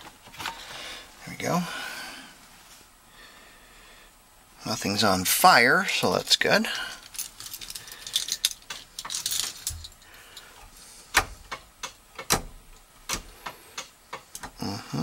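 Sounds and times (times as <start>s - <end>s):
keys jangling: 6.9s - 10.1s.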